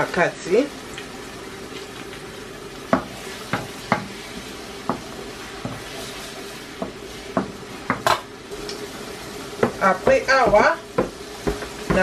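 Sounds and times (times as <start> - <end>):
frying sizzle: 0.0 - 12.0
wooden spoon knocking on pan: 2.9 - 4.1, 4.8 - 5.9, 6.8 - 8.3, 9.6 - 12.0.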